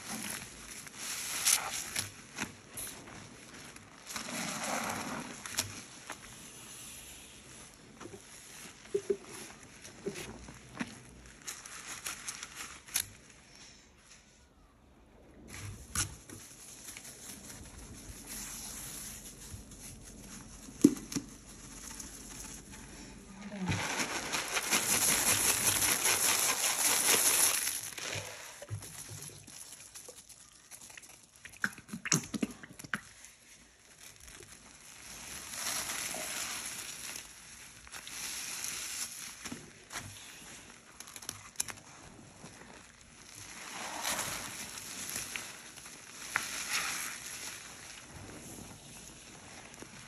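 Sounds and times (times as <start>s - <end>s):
sponges squishing in paste: 0.0s - 50.0s
powder poured with loud hiss: 2.5s - 10.5s, 20.5s - 30.2s, 33.4s - 40.8s, 42.1s - 50.0s.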